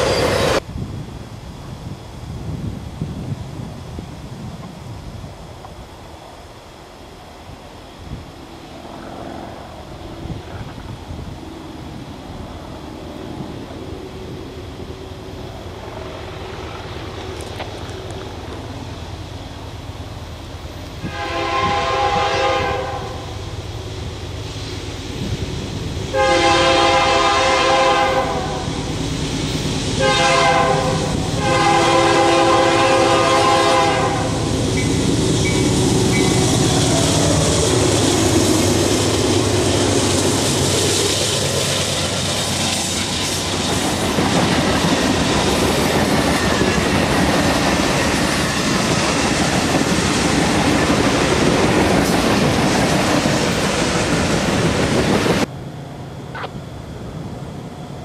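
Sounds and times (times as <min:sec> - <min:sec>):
train cars clickety-clack: 0:00.0 - 0:00.6, 0:24.9 - 0:55.5
diesel locomotive engines passing: 0:00.0 - 0:58.0
freight train wheel and rail noise: 0:00.0 - 0:58.0
locomotive air horn chord: 0:21.0 - 0:23.4, 0:26.1 - 0:28.7, 0:30.0 - 0:36.4.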